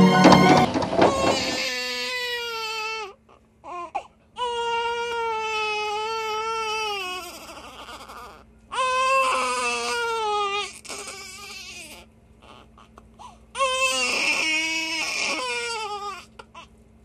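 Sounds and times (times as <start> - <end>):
infant crying: 0.0 - 16.7.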